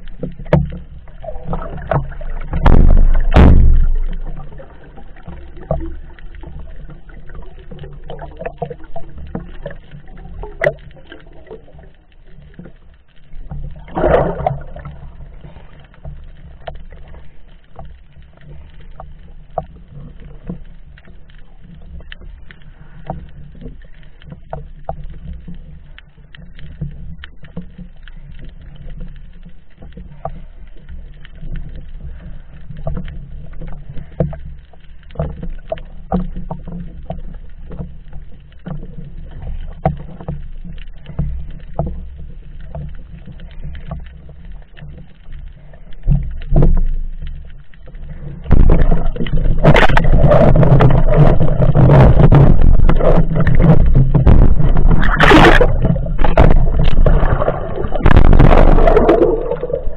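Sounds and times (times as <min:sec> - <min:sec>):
faint underwater clicks and crackles: 0:00.0 - 0:59.9
rush of water: 0:00.0 - 0:59.9
sharp splash: 0:13.9 - 0:14.8, 0:54.6 - 0:59.9.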